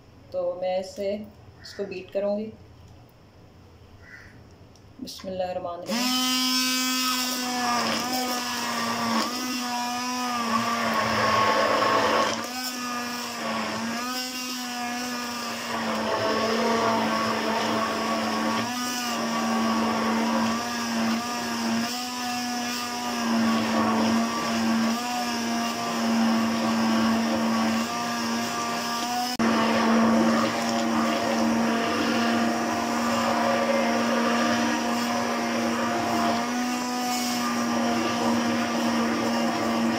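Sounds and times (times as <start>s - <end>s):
hand blender motor humming: 5.9s - 39.9s.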